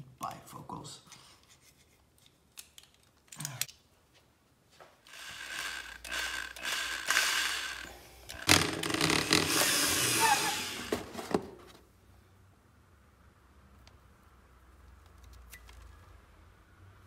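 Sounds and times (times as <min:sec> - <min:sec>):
electric drill whining: 0:05.1 - 0:11.2.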